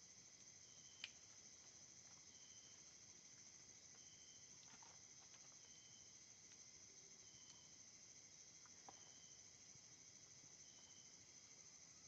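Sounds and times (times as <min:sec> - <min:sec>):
insects trilling: 0:00.0 - 0:12.0
short high insect call: 0:03.9 - 0:04.6.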